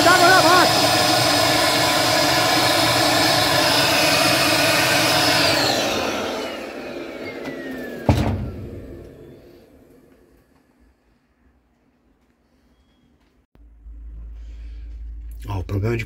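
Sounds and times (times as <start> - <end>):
small vacuum cleaner whining: 0.0 - 11.0.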